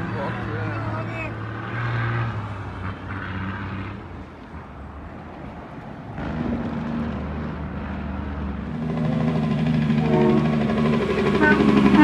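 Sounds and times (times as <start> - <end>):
truck diesel engine running: 8.7 - 12.0.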